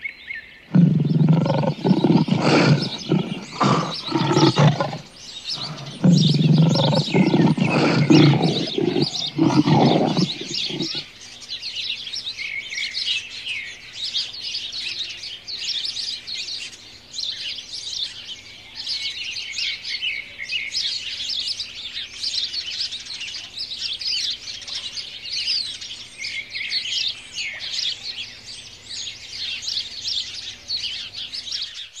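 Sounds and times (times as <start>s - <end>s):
songbirds chirping and trilling: 0.0s - 32.0s.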